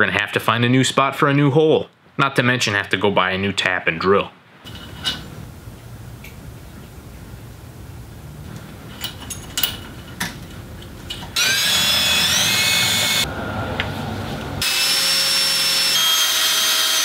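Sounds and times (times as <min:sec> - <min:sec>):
cordless drill whining into metal: 0:11.4 - 0:13.3, 0:14.6 - 0:17.0.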